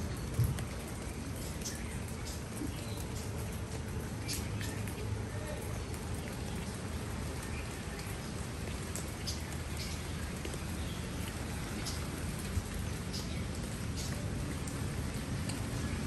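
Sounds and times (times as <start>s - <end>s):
rain falling on leaves: 0.0s - 16.0s.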